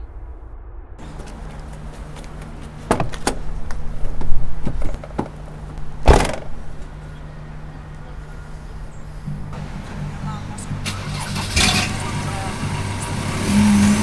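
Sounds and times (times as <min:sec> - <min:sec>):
steady low hum: 0:00.0 - 0:14.0
van door slamming shut: 0:02.8 - 0:03.5, 0:06.0 - 0:06.6
door clicks and rattles: 0:06.0 - 0:06.6.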